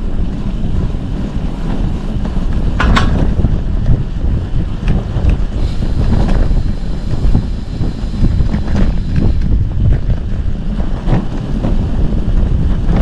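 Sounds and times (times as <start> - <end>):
wind buffeting microphone: 0.0 - 13.0
knocks and rattles: 1.6 - 4.0.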